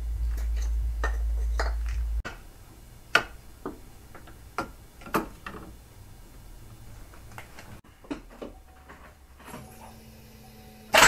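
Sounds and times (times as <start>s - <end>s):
steady low hum: 0.0s - 4.6s.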